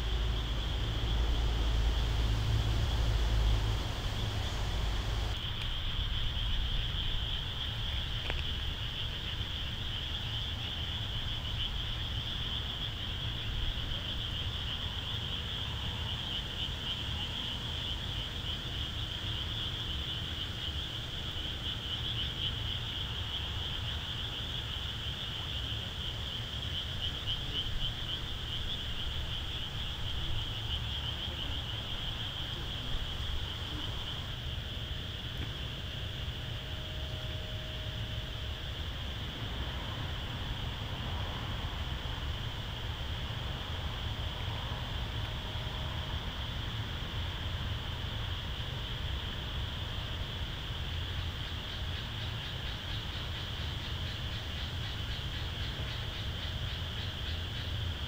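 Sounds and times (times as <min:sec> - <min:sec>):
frogs chorus: 0:00.0 - 0:58.0
low steady rumble: 0:00.0 - 0:58.0.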